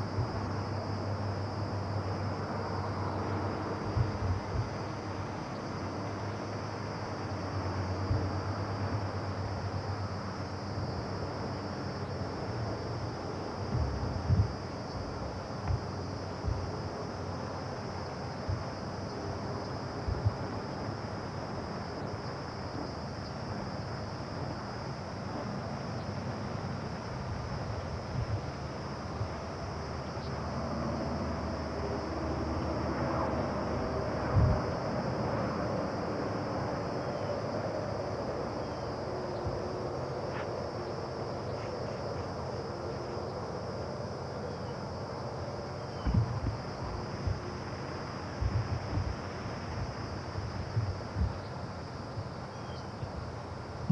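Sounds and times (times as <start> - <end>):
high insect drone: 0.0 - 53.9
steady hiss: 0.0 - 53.9
soft low thumps: 3.9 - 4.8, 8.0 - 8.4, 13.6 - 16.9, 18.4 - 18.8, 20.1 - 20.4, 28.1 - 28.5, 29.2 - 29.4, 46.0 - 47.5, 48.4 - 51.5.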